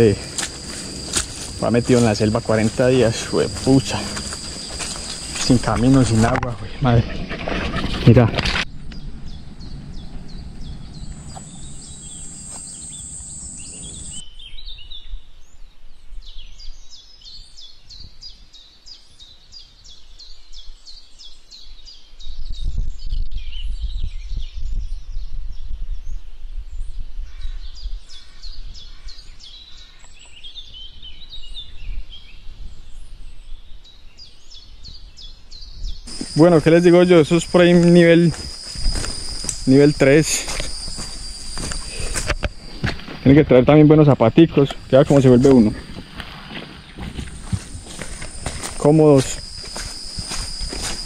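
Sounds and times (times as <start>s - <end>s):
high insect buzz: 0.0s - 6.5s, 9.3s - 14.2s, 36.1s - 51.0s
birds chirping: 0.0s - 14.2s, 36.0s - 51.0s
low microphone rumble: 8.7s - 14.2s.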